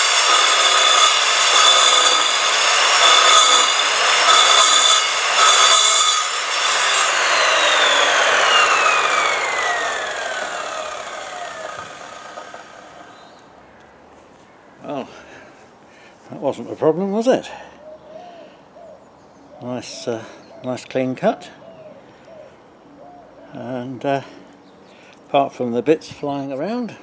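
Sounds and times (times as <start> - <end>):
saw blade cutting steel: 0.0 - 13.2
saw motor whine: 0.0 - 13.4.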